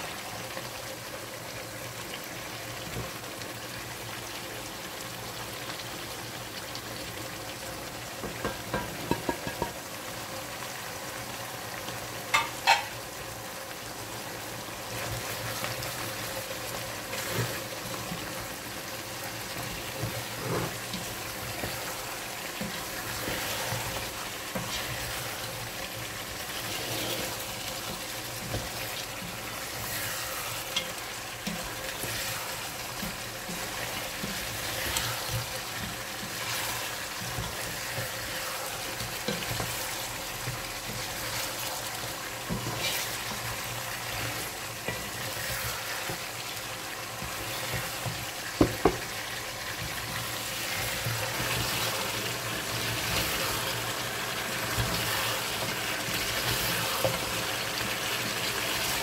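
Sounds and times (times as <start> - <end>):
meat sizzling in a pot: 0.0 - 59.0
spatula scraping and knocking pot: 8.3 - 9.8, 19.6 - 25.4, 47.2 - 49.1.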